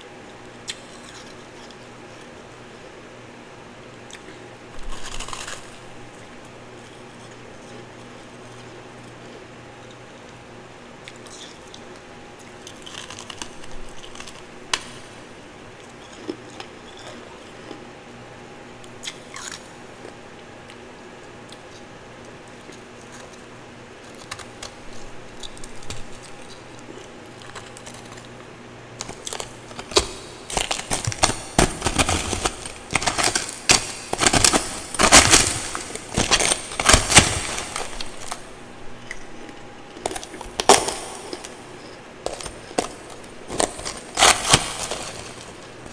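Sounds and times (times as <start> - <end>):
crisp crunching of ice: 4.8 - 5.8, 29.0 - 38.5, 42.2 - 45.9.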